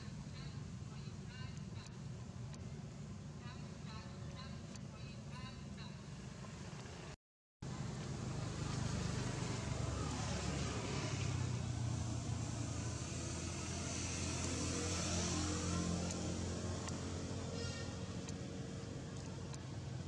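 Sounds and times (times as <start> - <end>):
vehicle engine humming: 7.7 - 20.0.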